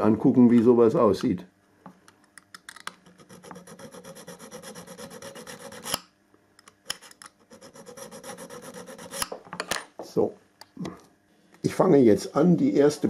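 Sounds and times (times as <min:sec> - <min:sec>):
file rasping on metal rail: 0:03.1 - 0:06.0, 0:07.0 - 0:09.3.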